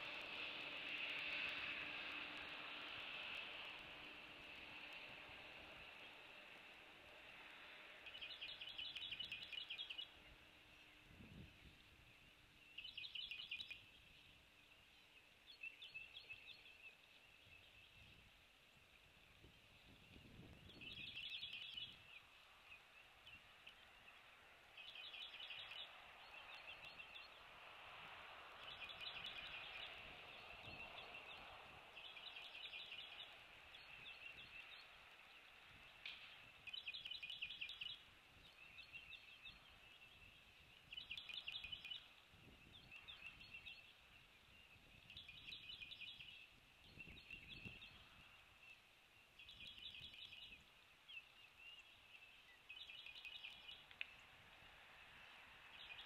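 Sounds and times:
steady hiss: 0.0s - 15.6s, 16.9s - 56.0s
bird singing rapid trill: 8.0s - 11.0s, 12.1s - 18.1s, 19.9s - 27.5s, 28.5s - 54.3s, 55.6s - 56.0s.

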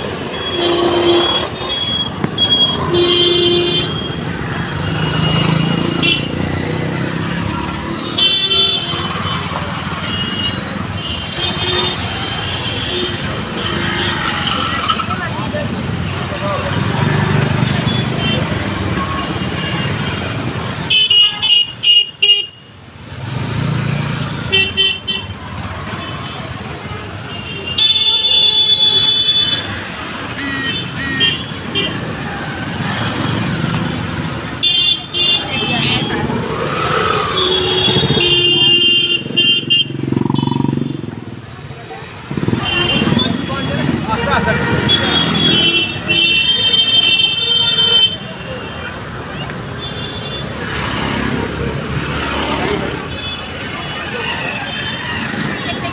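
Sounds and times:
street traffic: 0.0s - 55.9s
passing vehicle engine rumble: 35.4s - 38.4s.

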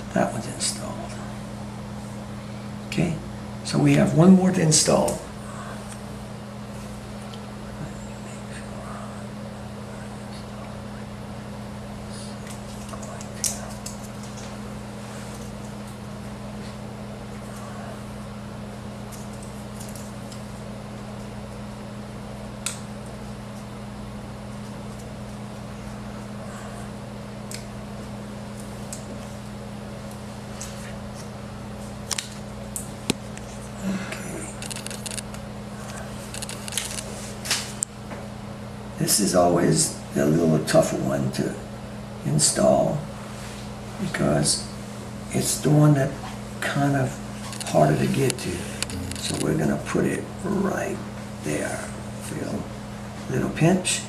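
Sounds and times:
steady low hum: 0.0s - 54.0s
adhesive tape clicking and rustling: 34.6s - 35.4s, 36.3s - 37.6s.

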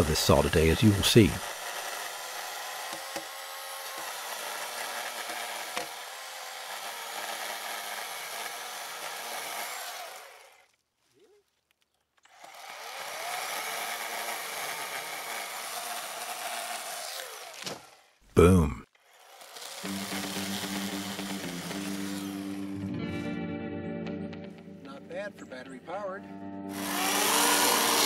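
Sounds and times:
chainsaw cutting tree trunk: 0.0s - 10.8s, 12.2s - 18.2s, 19.0s - 22.8s, 26.7s - 28.0s.

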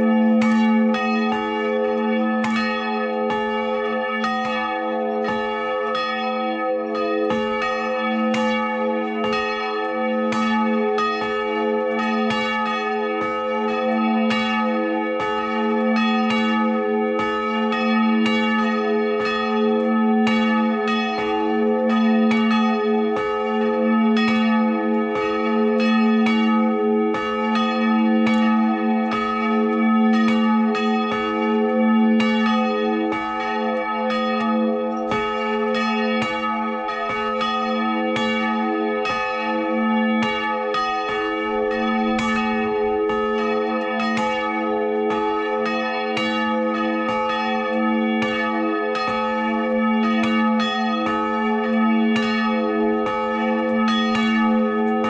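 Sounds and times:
church bells pealing: 0.0s - 55.0s.

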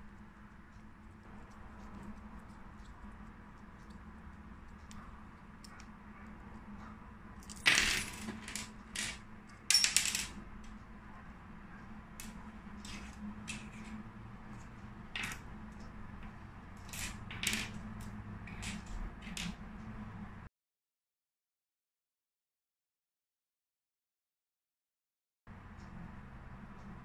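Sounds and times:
small metal parts clinking: 7.4s - 10.4s, 12.2s - 14.0s, 15.1s - 15.5s, 16.8s - 19.6s.

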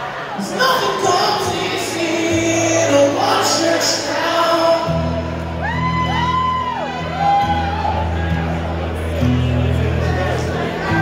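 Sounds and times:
man singing: 0.4s - 5.5s
acoustic guitar playing: 0.5s - 11.0s.

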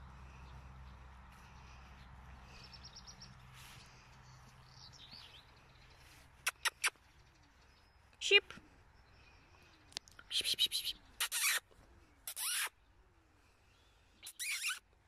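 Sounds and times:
small birds chirping: 0.0s - 14.8s
bird trill: 14.2s - 14.8s.

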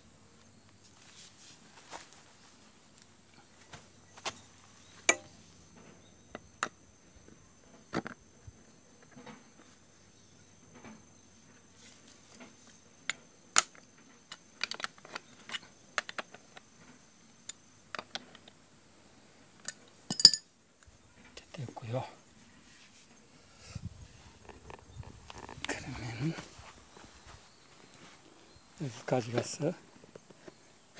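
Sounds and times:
metal tool clicking on clamp parts: 19.6s - 20.4s.

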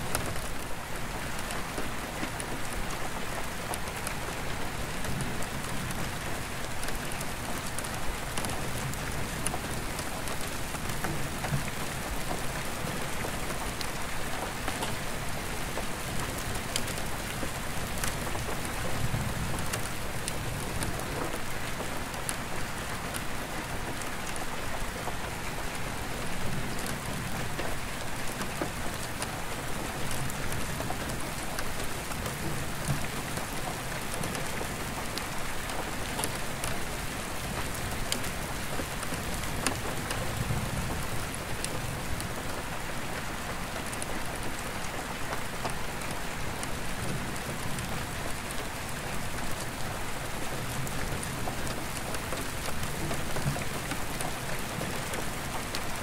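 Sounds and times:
rain drumming on glass: 26.2s - 56.0s.

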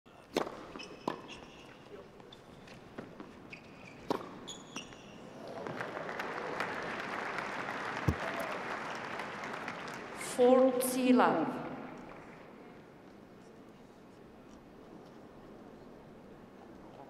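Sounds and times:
tennis ball struck with racquets: 0.3s - 1.5s, 4.0s - 4.9s
crowd applause: 5.4s - 10.3s
ball bounce thud: 8.0s - 8.2s.

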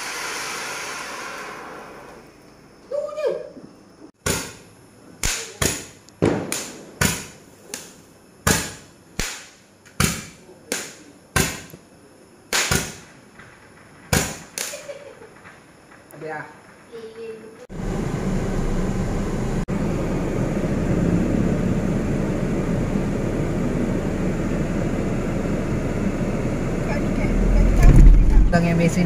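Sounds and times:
sharp bangs: 4.2s - 11.8s, 12.5s - 16.1s.

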